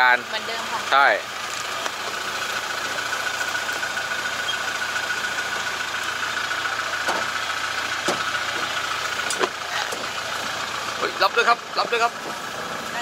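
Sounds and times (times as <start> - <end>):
truck engine rumbling: 0.0 - 13.0.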